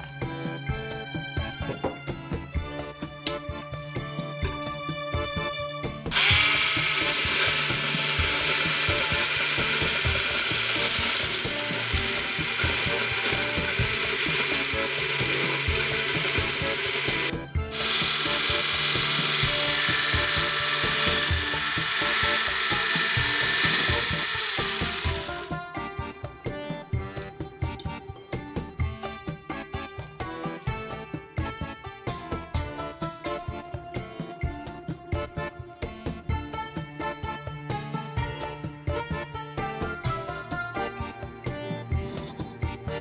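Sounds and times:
electric hand blender whirring: 0:06.1 - 0:25.9.

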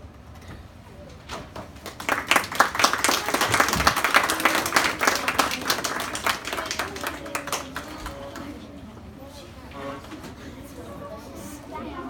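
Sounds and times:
audience applauding: 0:01.6 - 0:08.6.

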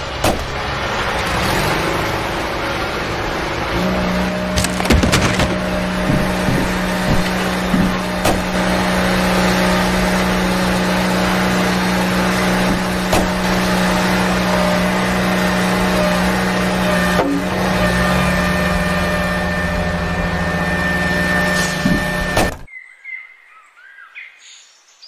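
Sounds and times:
toy tractor motor droning: 0:04.0 - 0:22.7.

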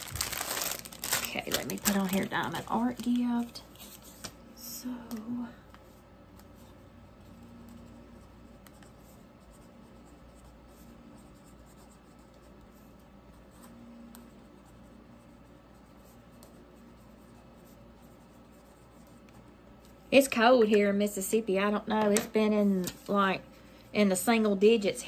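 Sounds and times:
low room hum: 0:00.0 - 0:25.0
pen scratching on paper: 0:07.2 - 0:19.4.

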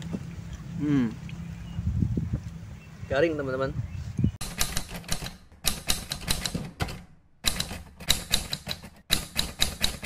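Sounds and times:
typewriter keys clicking: 0:04.4 - 0:10.0.

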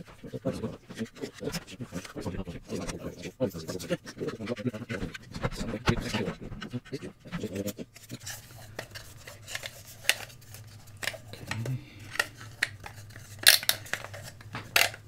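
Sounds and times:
low steady hum: 0:00.0 - 0:15.0
hard plastic clicking and clacking: 0:11.0 - 0:15.0.

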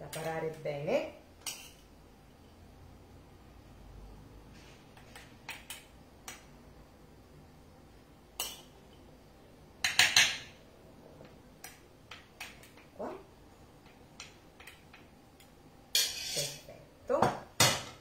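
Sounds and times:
metal spoon scraping plate: 0:15.9 - 0:16.7.

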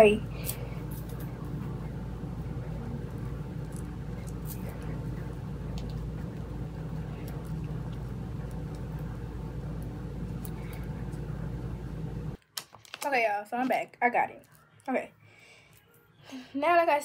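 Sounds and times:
appliance humming: 0:00.0 - 0:12.4.

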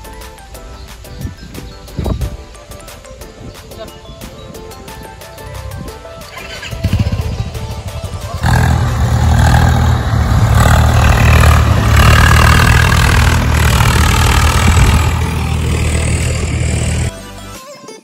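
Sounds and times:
tractor diesel engine under load: 0:06.3 - 0:17.1.

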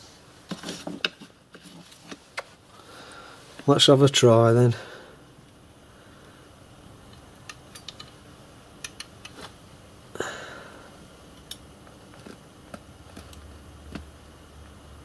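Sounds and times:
small metallic clicks and taps: 0:07.1 - 0:08.2, 0:08.8 - 0:09.5.

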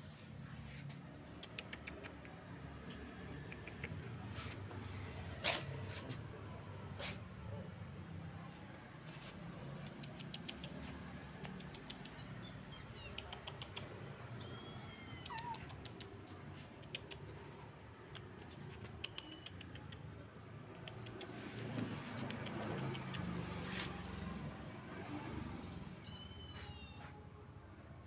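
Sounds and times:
cat meowing: 0:14.3 - 0:15.9, 0:25.8 - 0:27.2
light clicks and taps: 0:15.1 - 0:23.6.

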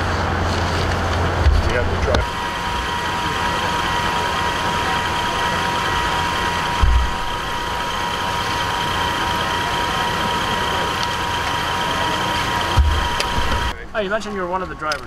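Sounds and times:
idling vehicles hum: 0:00.0 - 0:15.0
thin steady whine: 0:00.0 - 0:15.0
low thump: 0:06.8 - 0:07.2.

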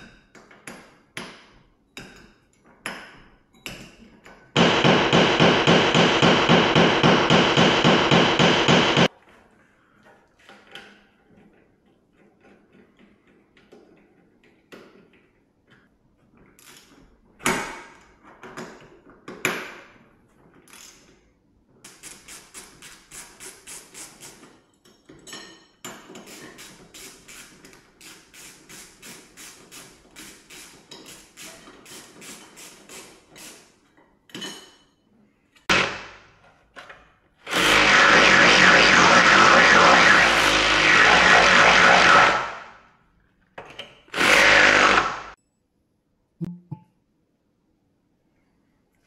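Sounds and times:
loud steady rushing noise: 0:37.5 - 0:42.7.

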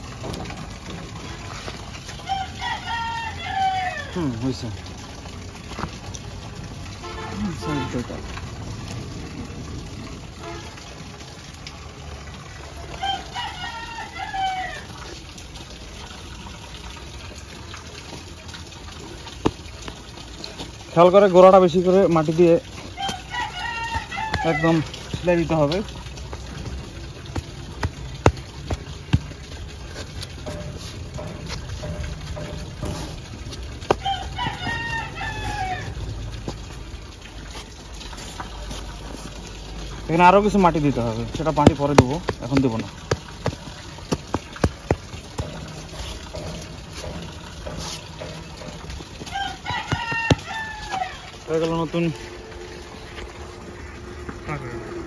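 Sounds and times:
rooster crowing: 0:02.2 - 0:04.2, 0:13.0 - 0:14.9, 0:23.0 - 0:24.8, 0:34.0 - 0:36.0, 0:49.3 - 0:51.3.

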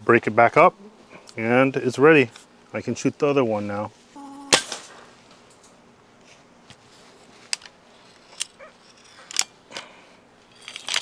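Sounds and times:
air rifle shot crack: 0:04.5 - 0:05.0.

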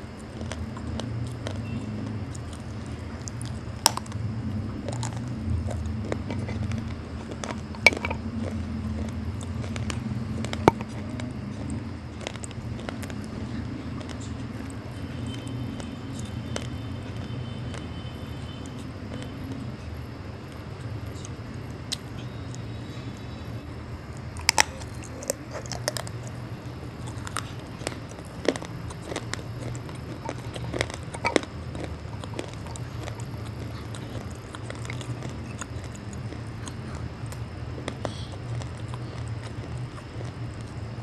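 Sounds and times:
crunching and chewing clay: 0:00.0 - 0:41.0
steady low hum: 0:00.0 - 0:41.0.

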